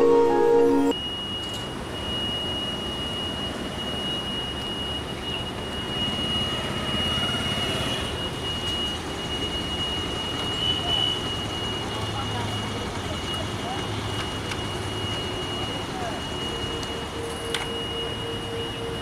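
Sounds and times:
intro music chimes: 0:00.0 - 0:01.4.

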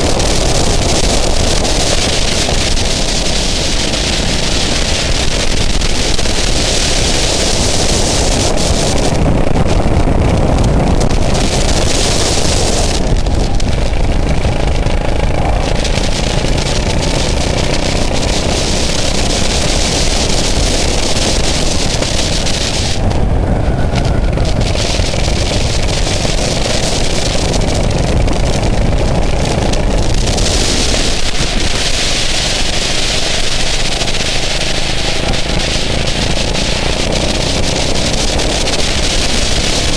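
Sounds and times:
go-kart engine running: 0:00.0 - 0:39.9
wind noise on microphone: 0:00.0 - 0:39.9.

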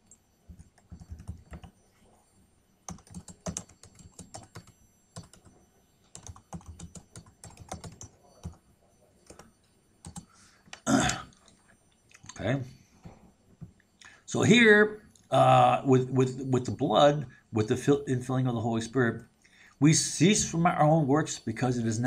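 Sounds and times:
computer keyboard typing: 0:00.0 - 0:01.8, 0:02.8 - 0:08.6, 0:09.2 - 0:12.4.

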